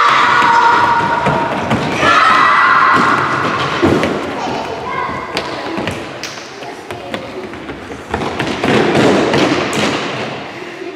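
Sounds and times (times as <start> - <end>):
children's footsteps on hall floor: 0.0 - 10.9
hall background noise: 0.0 - 10.9.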